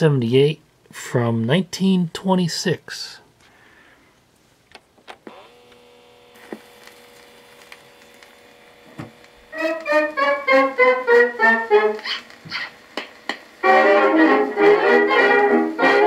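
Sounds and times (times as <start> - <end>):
faint steady hum: 0.0 - 16.0
turntable clicks: 12.0 - 13.6.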